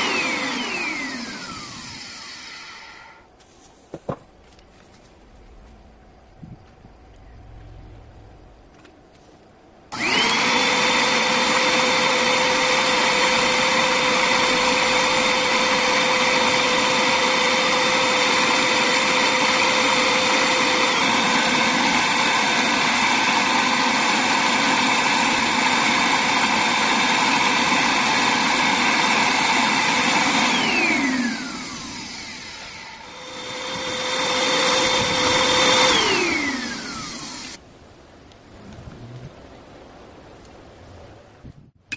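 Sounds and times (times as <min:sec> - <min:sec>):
small electric motor whining: 0:00.0 - 0:03.3, 0:09.9 - 0:37.6.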